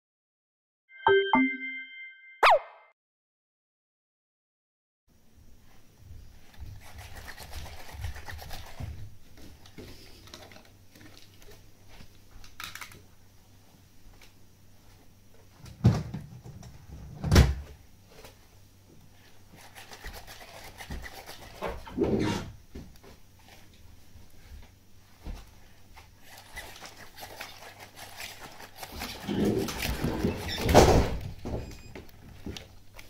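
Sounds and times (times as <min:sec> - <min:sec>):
rustling movement: 0:23.2 - 0:33.0
robot dog motors whirring: 0:26.2 - 0:31.9.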